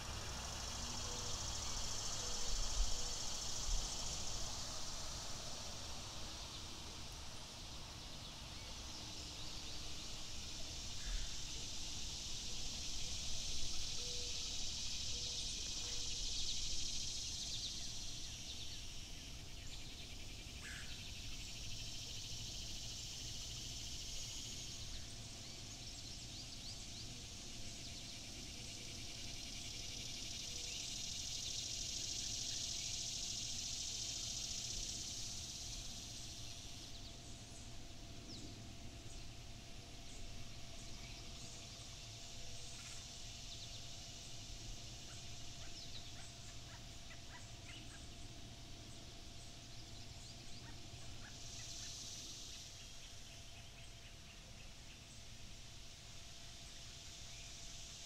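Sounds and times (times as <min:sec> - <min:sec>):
stream hissing: 0:00.0 - 0:19.5
faint chirps: 0:00.0 - 0:58.0.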